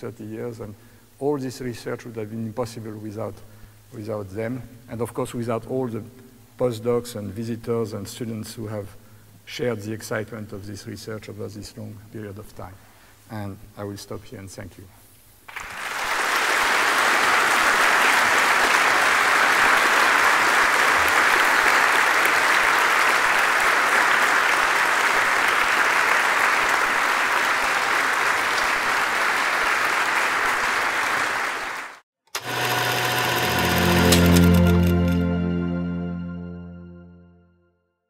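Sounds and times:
audience applauding: 0:15.5 - 0:35.2
short music sting: 0:33.0 - 0:37.6.

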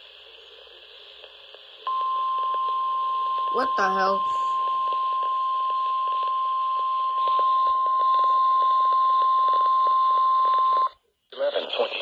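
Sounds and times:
static hiss: 0:00.0 - 0:01.9
single-pitch warning alarm tone: 0:01.9 - 0:10.4.

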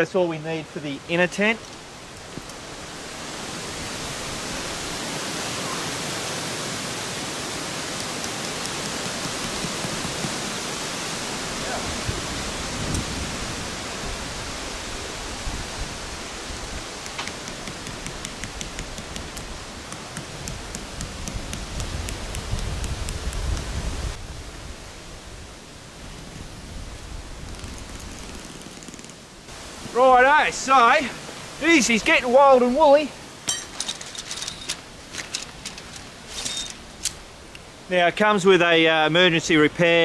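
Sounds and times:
rain hissing: 0:00.0 - 0:39.7
wind buffeting microphone: 0:11.4 - 0:17.0, 0:20.5 - 0:24.9.

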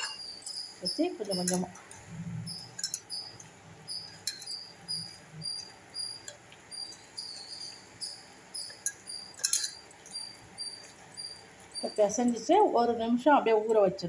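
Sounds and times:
cricket chirping: 0:00.0 - 0:12.2
sharp clinks: 0:02.5 - 0:12.4.

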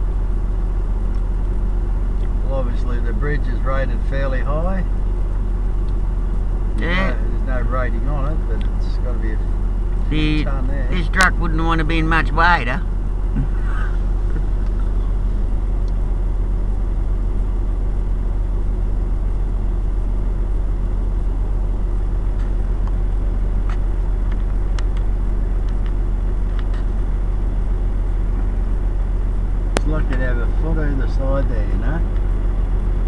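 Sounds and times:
car engine idling: 0:00.0 - 0:33.0.

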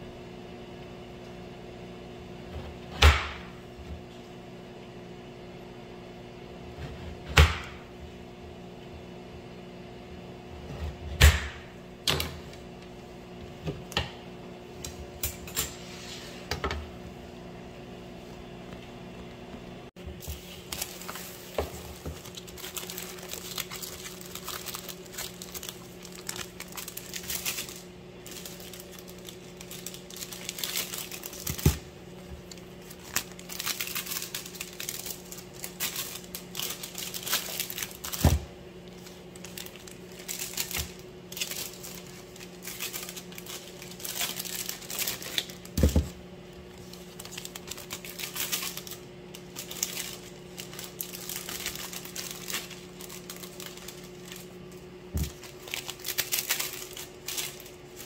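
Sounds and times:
electrical hum: 0:00.0 - 0:58.0
plastic bags crinkling: 0:20.1 - 0:58.0.

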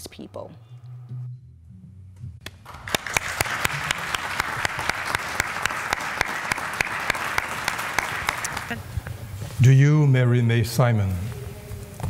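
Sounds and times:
audience applauding: 0:02.5 - 0:08.8.

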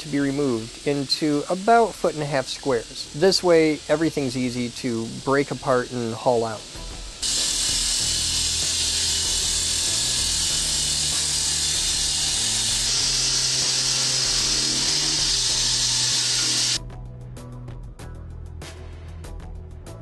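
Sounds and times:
background music: 0:00.0 - 0:20.0
concrete saw cutting: 0:07.2 - 0:16.8.

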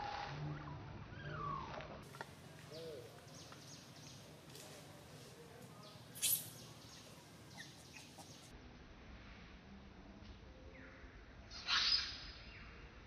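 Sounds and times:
high-pitched chirping calls: 0:05.8 - 0:08.5.

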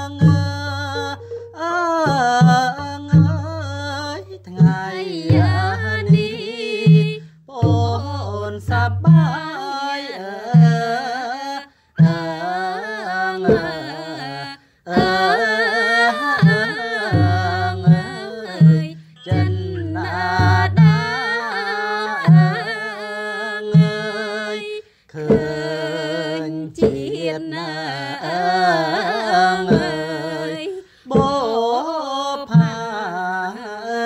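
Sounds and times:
wavering sung melody: 0:00.0 - 0:06.8, 0:15.1 - 0:23.3
low drum beat: 0:00.0 - 0:09.5, 0:16.4 - 0:21.2.

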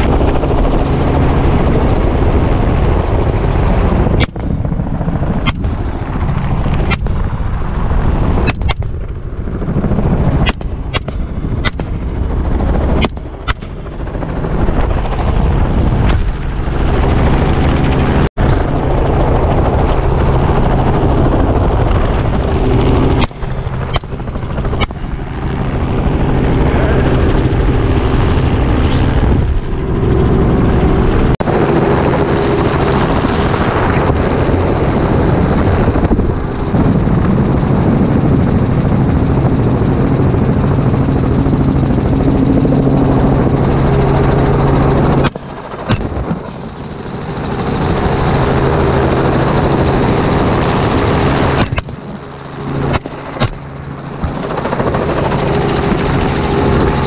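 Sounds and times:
helicopter engine and rotor: 0:00.0 - 0:57.0
rifle shots: 0:10.4 - 0:12.1, 0:13.0 - 0:13.8, 0:52.9 - 0:53.7.

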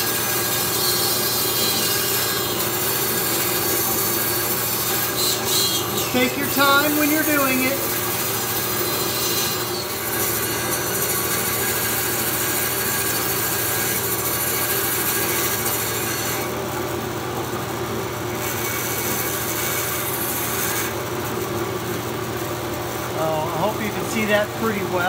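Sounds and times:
bandsaw cutting rubber: 0:00.0 - 0:16.6, 0:18.3 - 0:21.4.

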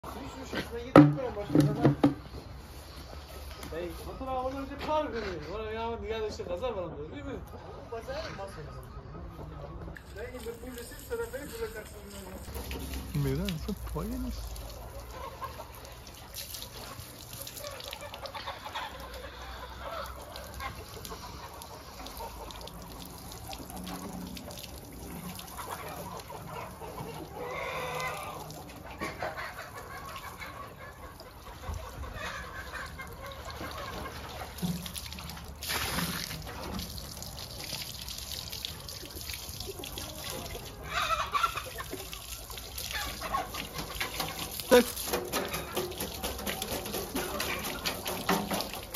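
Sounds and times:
hose water splashing into wheelbarrow: 0:00.0 - 0:04.8, 0:10.0 - 0:48.9
knocks: 0:01.0 - 0:02.3
chickens clucking: 0:07.4 - 0:35.0, 0:38.7 - 0:48.9.

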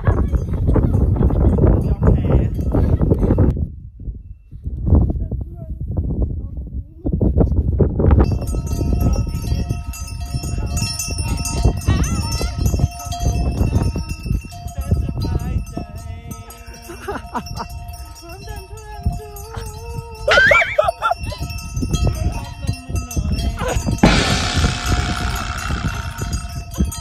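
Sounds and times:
camel harness bells jingling: 0:00.0 - 0:03.5, 0:08.2 - 0:24.0.

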